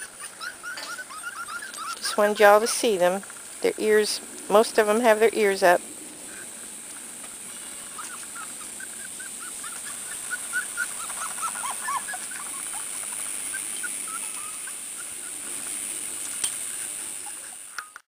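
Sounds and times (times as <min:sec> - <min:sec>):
puppies whimpering and squeaking: 0:00.0 - 0:03.2, 0:07.5 - 0:15.7, 0:16.8 - 0:18.0.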